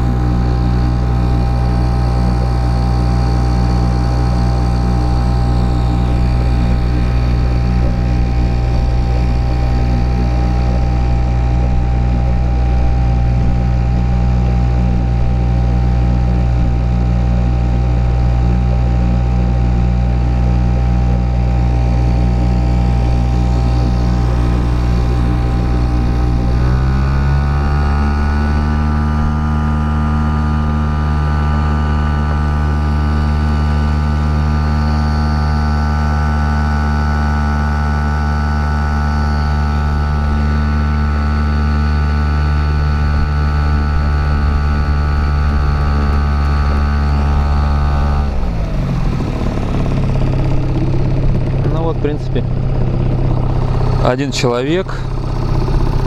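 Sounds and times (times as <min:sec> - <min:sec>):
outboard motor running: 0:00.0 - 0:56.0.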